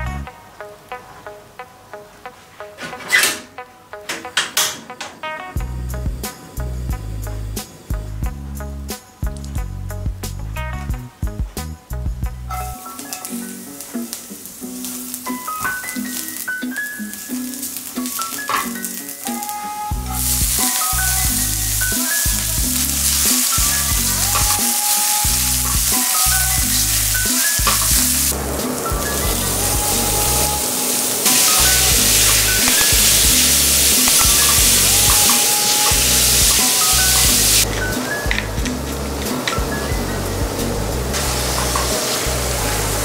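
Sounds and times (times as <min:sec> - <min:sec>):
background music with steady beat: 0:00.0 - 0:43.0
food sizzling in frying pan: 0:12.5 - 0:43.0.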